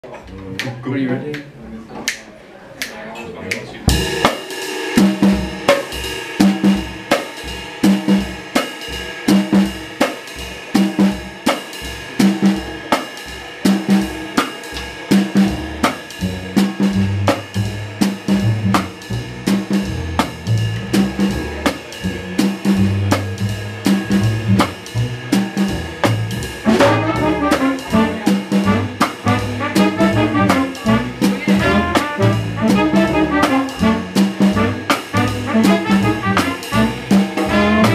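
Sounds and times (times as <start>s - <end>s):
jazz drum kit playing: 3.8s - 37.9s
double bass notes: 15.2s - 37.9s.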